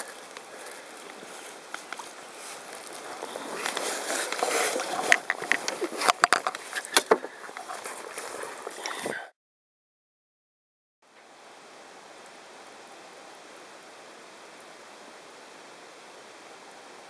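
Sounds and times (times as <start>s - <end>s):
camera rustling against fabric: 0.0s - 9.2s.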